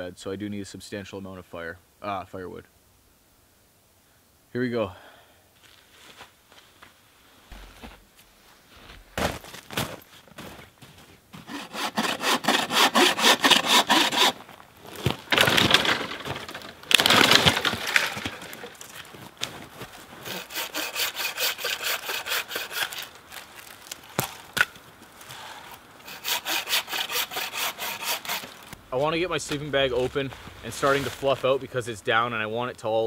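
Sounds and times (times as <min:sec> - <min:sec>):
bow saw cutting branch: 0:11.4 - 0:14.4, 0:20.2 - 0:24.7, 0:26.0 - 0:28.8.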